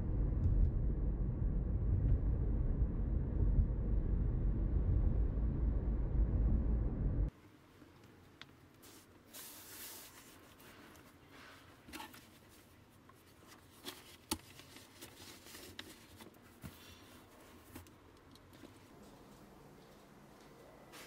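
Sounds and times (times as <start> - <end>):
paper and cardboard rustling: 8.8 - 17.9.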